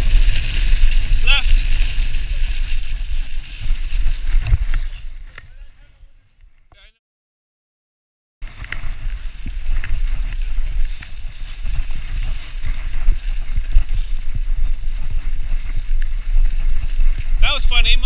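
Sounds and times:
bike rolling over dirt trail: 0.0s - 5.7s, 8.4s - 18.0s
wind buffeting microphone: 0.0s - 6.2s, 8.4s - 18.0s
bike clicks and rattles: 8.4s - 17.4s.

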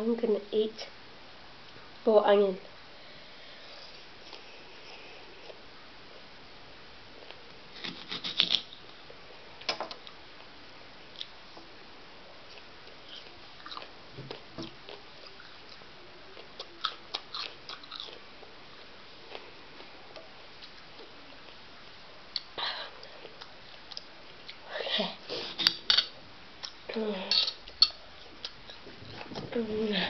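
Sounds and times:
soft chewing: 3.6s - 6.2s, 12.3s - 21.7s, 22.3s - 30.0s
crisp crunches of onion: 7.8s - 8.8s.

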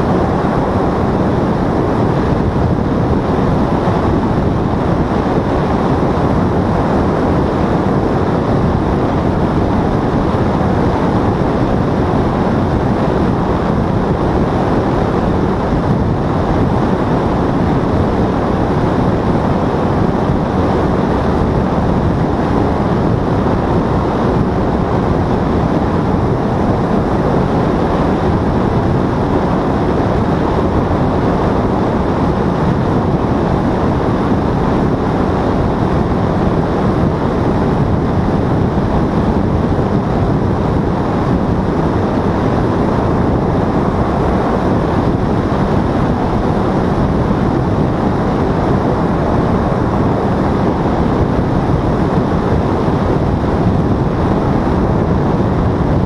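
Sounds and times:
paramotor engine and propeller: 0.0s - 56.0s
wind rushing over microphone: 0.0s - 56.0s.

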